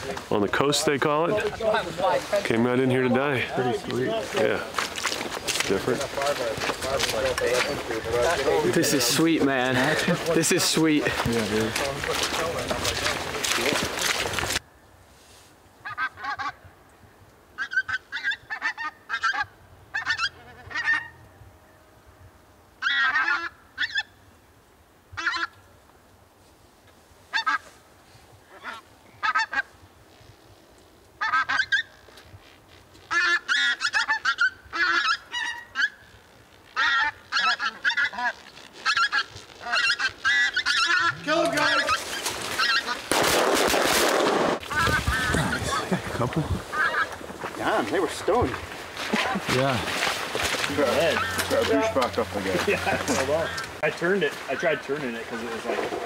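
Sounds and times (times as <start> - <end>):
geese honking: 15.8 - 16.6, 17.6 - 21.3, 22.8 - 24.1, 25.2 - 25.6, 27.3 - 27.8, 28.5 - 29.7, 31.2 - 32.0, 33.1 - 43.2, 44.6 - 49.4, 50.3 - 56.0.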